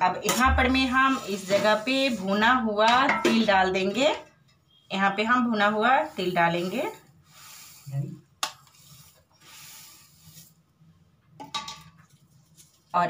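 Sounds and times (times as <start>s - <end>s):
seeds sliding into bowl: 8.6s - 10.6s.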